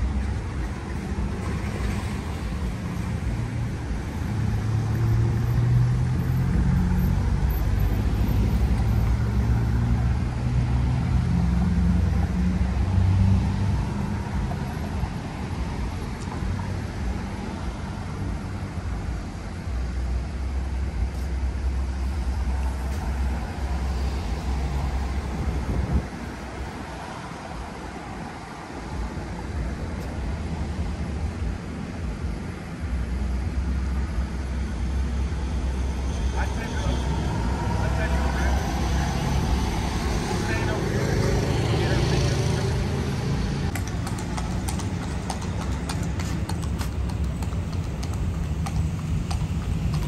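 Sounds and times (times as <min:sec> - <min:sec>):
cars passing: 0:00.0 - 0:50.0.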